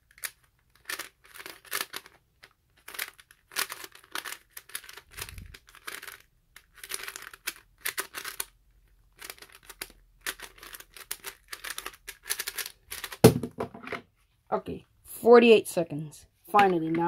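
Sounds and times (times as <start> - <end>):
puzzle cube layers clicking: 0.1 - 13.3.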